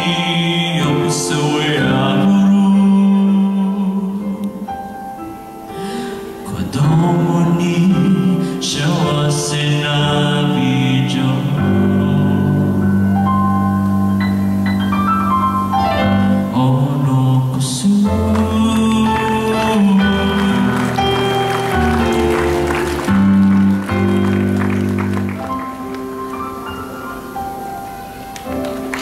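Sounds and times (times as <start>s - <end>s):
keyboard chords: 0.0s - 29.0s
held bass notes: 11.6s - 25.9s.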